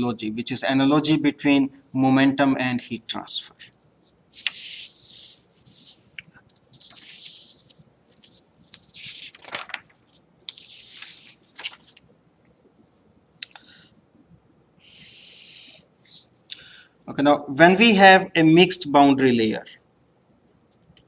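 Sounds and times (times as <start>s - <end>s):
paper pages rustling and sliding: 4.3s - 12.0s.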